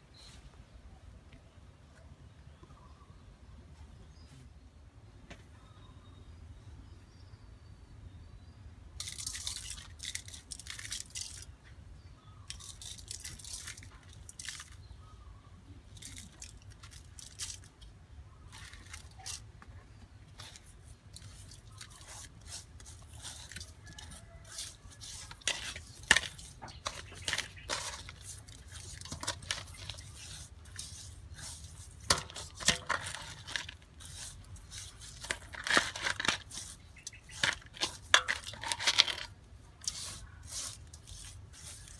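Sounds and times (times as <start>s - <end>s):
salt scraping on fish in metal bowl: 20.4s - 41.9s.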